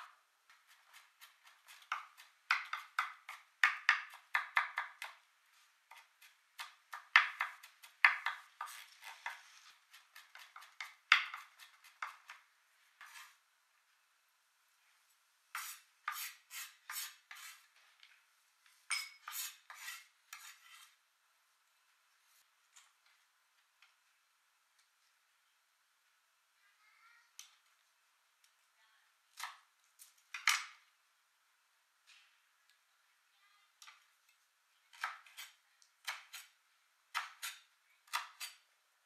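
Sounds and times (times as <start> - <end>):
knife chopping on wooden board: 0.7 - 5.2, 5.9 - 9.4.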